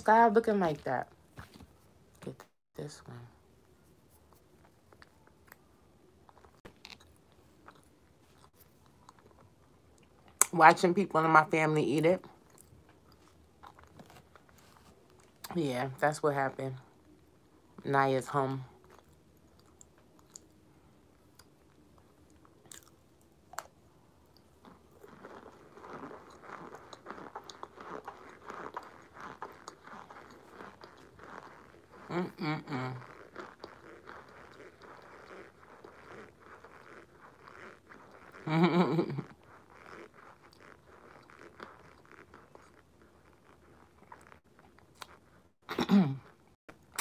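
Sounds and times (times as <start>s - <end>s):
woman's voice: 0.0s - 1.1s, 10.4s - 12.3s, 15.5s - 16.8s, 17.8s - 18.7s, 32.1s - 33.0s
crunching and chewing: 3.7s - 10.5s, 12.2s - 15.5s, 18.7s - 45.6s.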